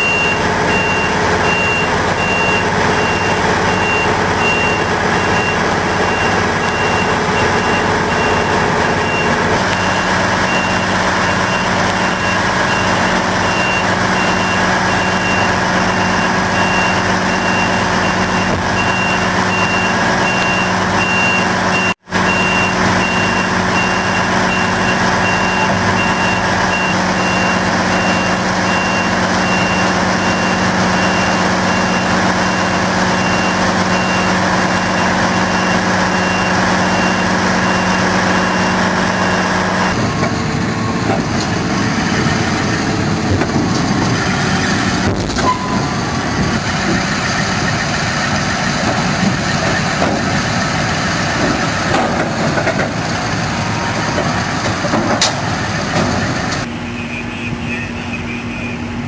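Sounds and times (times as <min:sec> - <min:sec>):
reversing alarm beeping: 0:00.0 - 0:41.2, 0:45.4 - 0:46.5, 0:56.6 - 0:59.0
diesel engine running: 0:00.0 - 0:59.0.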